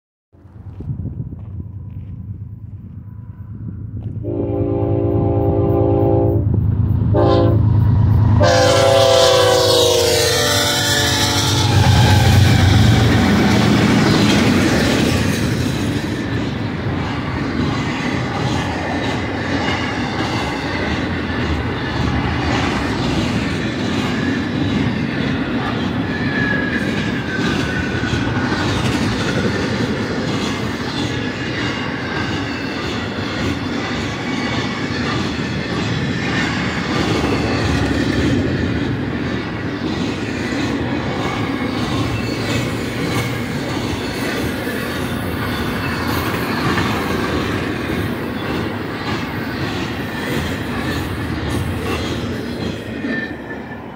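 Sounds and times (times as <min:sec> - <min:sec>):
freight train wheels rumbling: 0:00.4 - 0:53.9
high wheel squeal: 0:08.6 - 0:13.4, 0:49.2 - 0:53.9.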